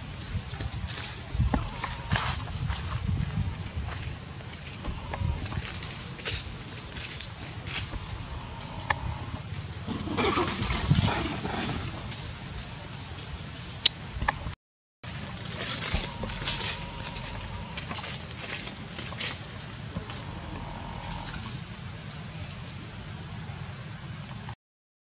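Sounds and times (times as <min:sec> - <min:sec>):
low rumble: 0:00.0 - 0:12.9, 0:15.3 - 0:18.5
insects droning: 0:00.0 - 0:24.6.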